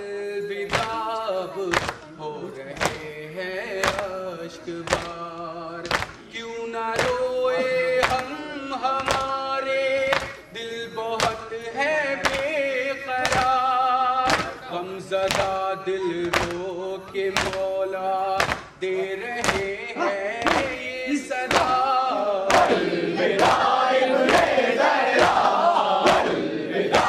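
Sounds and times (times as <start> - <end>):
man singing a lament into a microphone: 0.0 - 22.8
hands striking chests in unison: 0.7 - 1.0, 1.7 - 2.1, 3.8 - 4.2, 4.8 - 5.2, 5.8 - 6.2, 7.0 - 7.3, 8.0 - 8.3, 8.9 - 9.4, 10.0 - 10.5, 11.2 - 11.5, 13.2 - 14.6, 15.2 - 15.6, 16.2 - 18.8, 19.4 - 19.8, 20.4 - 27.0.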